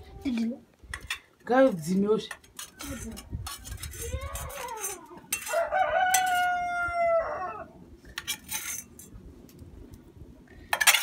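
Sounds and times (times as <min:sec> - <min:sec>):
rooster crowing: 0:05.4 - 0:07.8.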